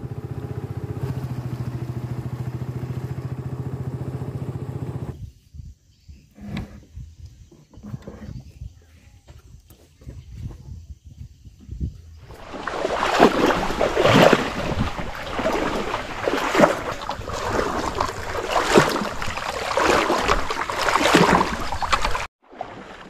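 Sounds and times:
wind buffeting microphone: 8.1s - 22.3s
water rushing around boat: 12.3s - 23.0s.

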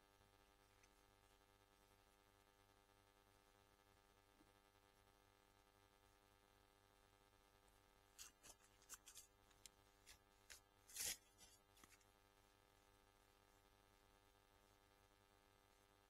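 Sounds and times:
tent fabric rustling: 10.9s - 12.0s.

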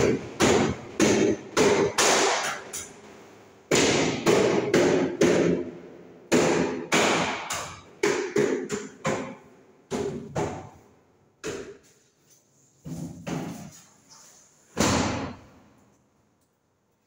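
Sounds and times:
hammer striking door frame: 0.0s - 2.6s, 3.7s - 5.7s, 6.3s - 10.7s.

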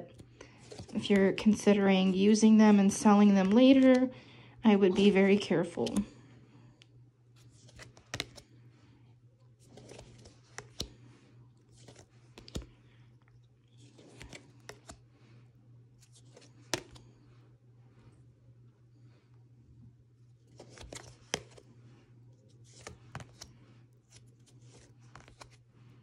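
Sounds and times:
cards swishing on cards: 7.4s - 8.5s, 9.6s - 12.7s, 13.7s - 15.0s, 16.0s - 17.2s, 20.5s - 21.8s, 22.5s - 25.7s.

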